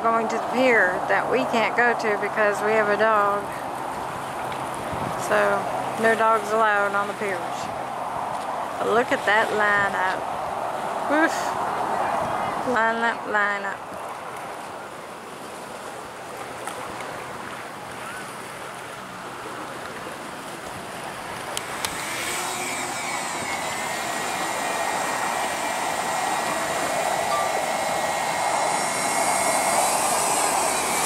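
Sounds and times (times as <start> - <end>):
wind and water hiss: 0.0 - 31.0
drone motors whining: 21.6 - 31.0.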